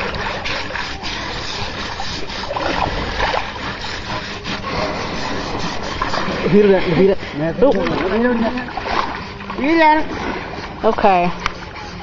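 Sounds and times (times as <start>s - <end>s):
water splashing and sloshing: 0.0s - 12.0s.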